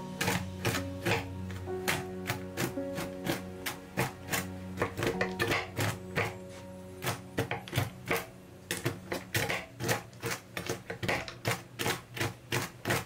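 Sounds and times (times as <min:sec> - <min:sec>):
knife chopping on wooden board: 0:07.0 - 0:13.0.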